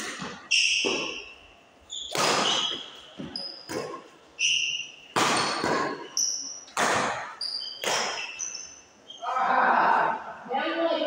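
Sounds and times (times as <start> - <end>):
shoes squeaking on court: 0.0 - 9.2
rackets striking shuttlecock: 2.1 - 2.9, 5.1 - 8.3.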